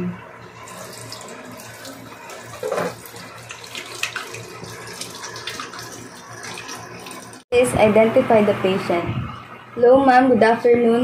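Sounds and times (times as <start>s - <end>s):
hands washing under water: 0.6s - 7.4s
tap water running into sink: 0.6s - 7.4s.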